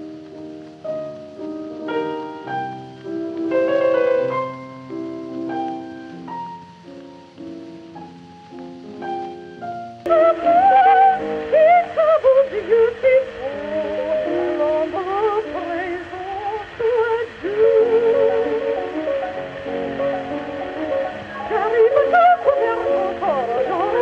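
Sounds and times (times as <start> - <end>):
piano accompaniment: 0.0 - 24.0
piano playing: 0.0 - 24.0
recording hiss: 0.0 - 24.0
woman singing with vibrato: 10.1 - 24.0.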